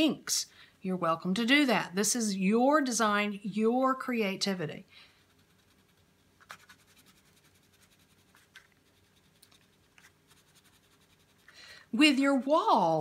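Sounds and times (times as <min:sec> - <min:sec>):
crayon scratching on paper: 0:05.2 - 0:11.5.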